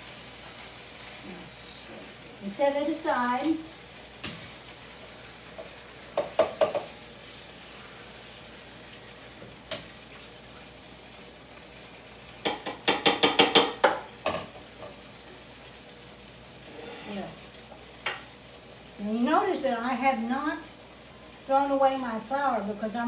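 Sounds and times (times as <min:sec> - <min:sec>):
meat sizzling in oil: 0:00.0 - 0:23.0
utensils scraping and clinking: 0:16.7 - 0:17.3.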